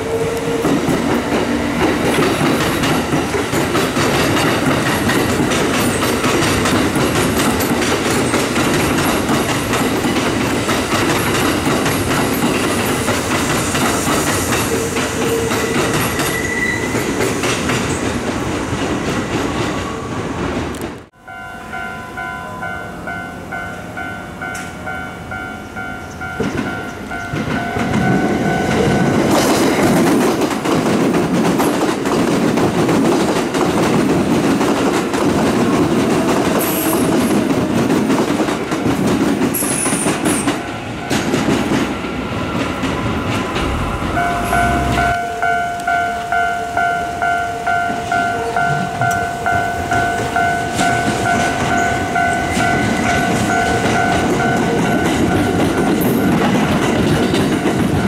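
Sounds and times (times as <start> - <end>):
train wheels clattering on track: 0.0 - 21.1, 26.1 - 46.3, 47.8 - 58.0
level-crossing alarm dinging: 21.2 - 29.3, 43.6 - 56.8.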